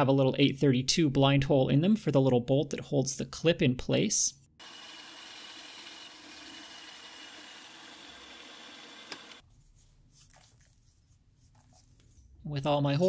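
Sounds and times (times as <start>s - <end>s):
milling machine drilling: 4.6s - 9.4s.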